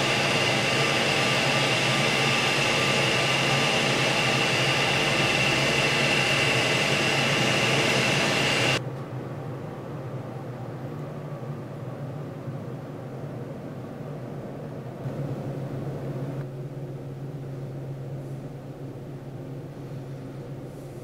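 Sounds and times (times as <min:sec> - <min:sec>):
freezer fan motors whining: 0:00.0 - 0:08.8.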